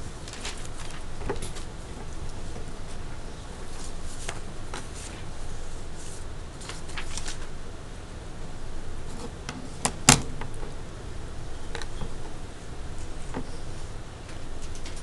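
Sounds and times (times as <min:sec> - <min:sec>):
paper rustling: 0:00.0 - 0:07.5
low steady hum: 0:00.0 - 0:15.0.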